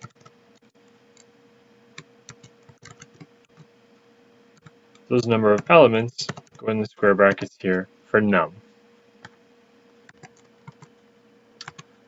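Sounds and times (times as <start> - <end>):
faint steady hum: 0.0 - 12.0
keyboard typing clicks: 2.0 - 3.7, 10.1 - 10.9, 11.6 - 11.9.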